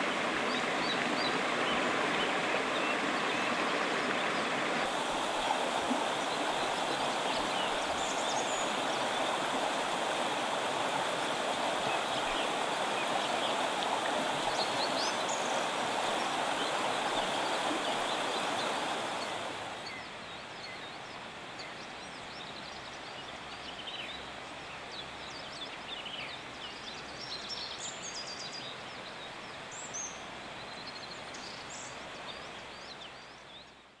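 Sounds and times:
river flowing over rocks: 0.0s - 22.0s
small birds chirping: 4.3s - 10.5s.

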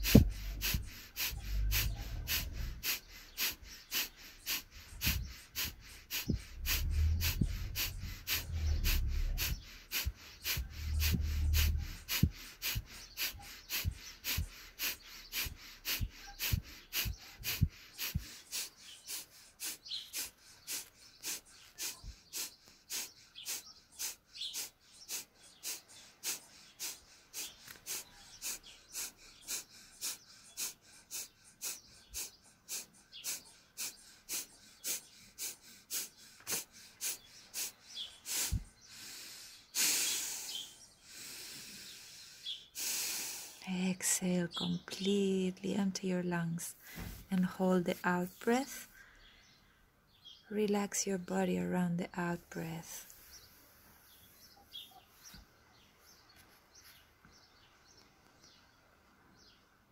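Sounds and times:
woman breathing forcefully: 0.0s - 43.6s, 46.8s - 47.3s.

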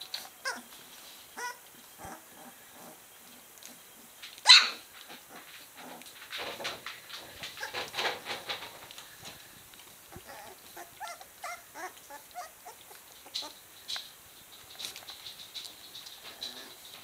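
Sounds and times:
puppies suckling clicks: 3.6s - 17.0s
puppies whimpering: 10.1s - 13.6s.

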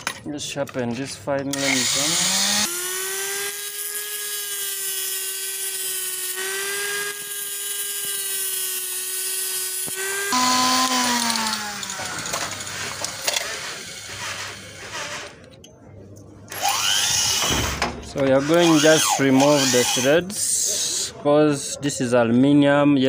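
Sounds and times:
angle grinder grinding steel: 1.6s - 15.4s, 18.2s - 21.1s.

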